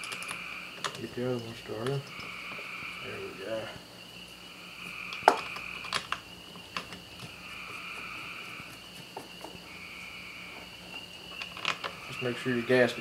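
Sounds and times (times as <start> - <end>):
small metal parts clicking: 0.0 - 2.3, 11.3 - 11.9
crickets trilling: 0.0 - 13.0.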